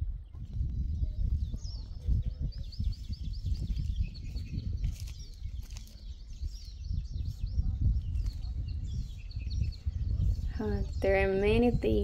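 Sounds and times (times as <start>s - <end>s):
wind rumbling on microphone: 0.0s - 12.0s
small bird chirping: 0.1s - 12.0s.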